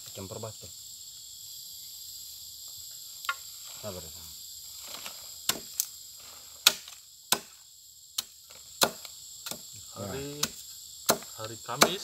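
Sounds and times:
insects droning: 0.0 - 12.0
machete chopping into stony soil: 4.9 - 5.9, 6.5 - 7.6, 8.2 - 12.0.

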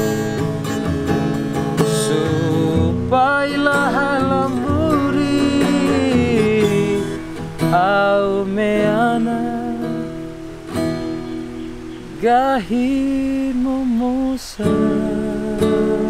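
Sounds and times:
acoustic guitar picking: 0.0 - 16.0
man singing long held notes: 1.8 - 10.2, 12.0 - 16.0.

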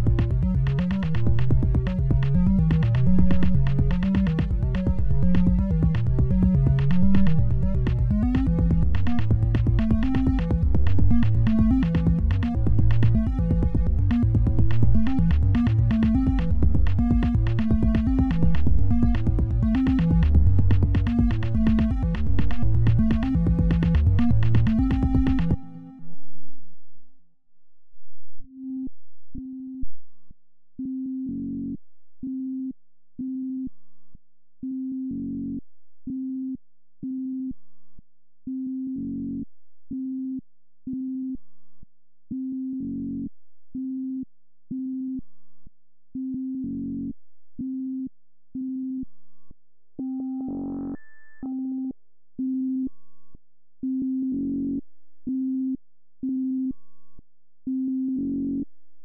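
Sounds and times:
synthesizer beeping notes: 0.0 - 26.0, 50.0 - 51.9.

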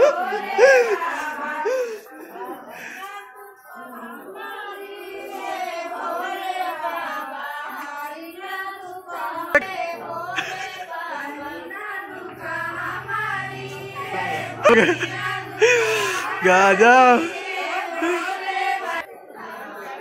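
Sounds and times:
women singing together: 0.0 - 20.0.

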